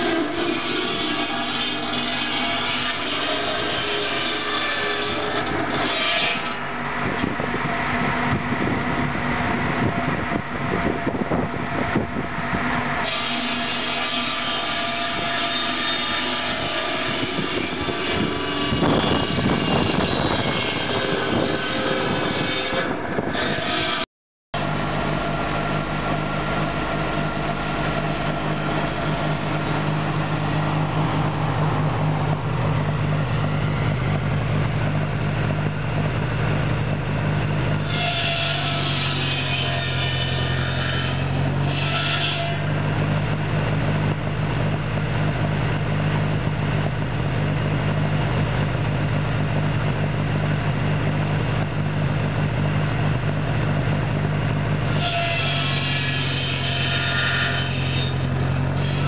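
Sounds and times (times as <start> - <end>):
circular saw cutting logs: 0.0 - 11.1, 12.0 - 59.0
tractor engine running: 0.0 - 13.1, 24.6 - 37.9, 41.3 - 41.7, 42.6 - 54.9, 58.1 - 59.0.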